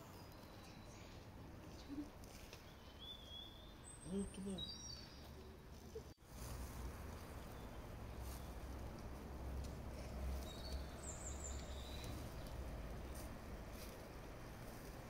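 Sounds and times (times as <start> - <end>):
bird chirps: 0.0 - 5.7, 10.3 - 13.3
low outdoor rumble: 5.2 - 15.0.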